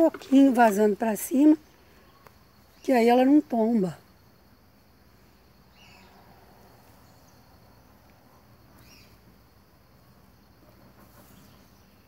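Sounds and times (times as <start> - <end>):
high-pitched insect trill: 0.0 - 12.0
short rising bird chirp: 8.8 - 9.2.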